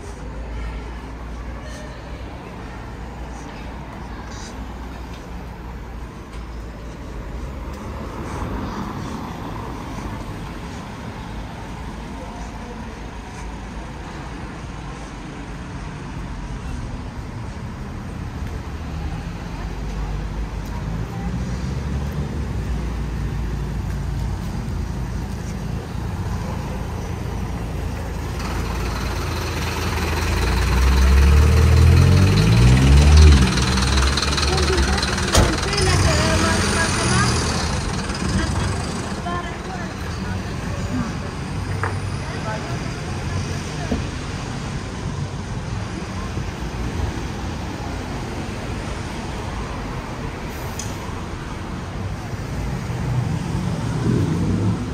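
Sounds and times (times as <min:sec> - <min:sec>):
low rumble of street traffic: 0:00.0 - 0:54.9
diesel truck engine passing: 0:19.3 - 0:45.0, 0:46.3 - 0:54.9.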